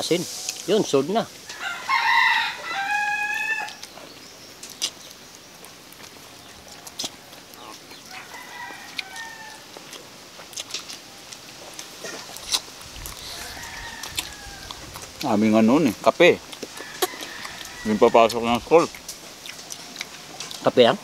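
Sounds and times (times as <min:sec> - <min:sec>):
chickens calling: 0:00.0 - 0:21.0
faint rooster crows: 0:01.5 - 0:03.9, 0:06.5 - 0:09.7, 0:13.2 - 0:14.9, 0:16.7 - 0:18.6.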